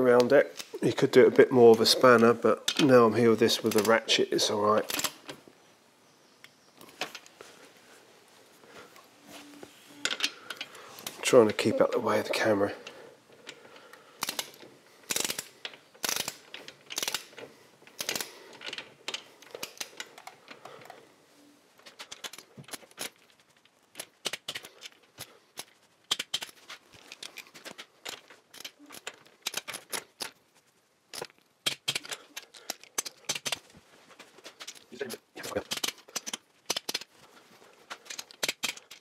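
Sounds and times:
torque wrench clicking: 14.2 - 17.3.

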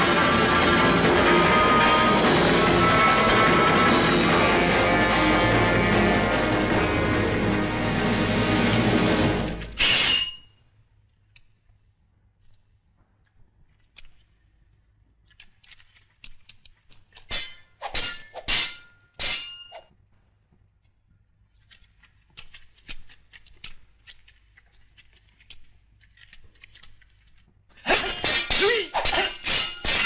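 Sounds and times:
swords clanging: 9.7 - 10.4, 17.3 - 19.8, 27.9 - 30.0.

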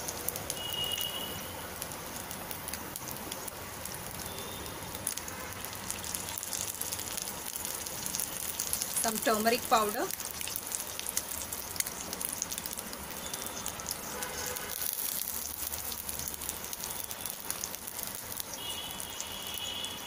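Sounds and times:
eggs sizzling in oil: 0.0 - 20.0.

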